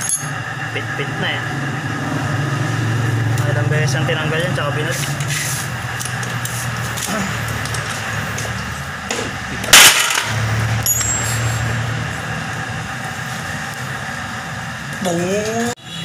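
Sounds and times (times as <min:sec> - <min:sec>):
steady low hum: 0:00.0 - 0:15.8
metal parts clinking: 0:09.7 - 0:11.6.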